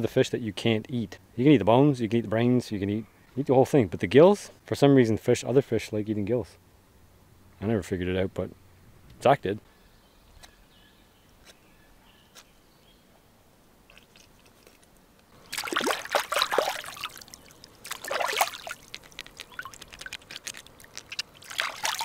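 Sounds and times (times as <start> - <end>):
water splashing and sloshing: 13.9 - 22.0.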